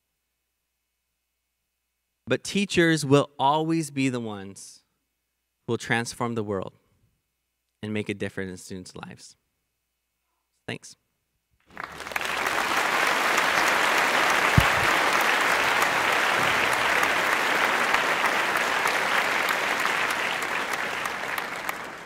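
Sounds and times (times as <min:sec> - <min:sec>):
audience applauding: 0:11.7 - 0:22.0
low thump: 0:14.6 - 0:14.9.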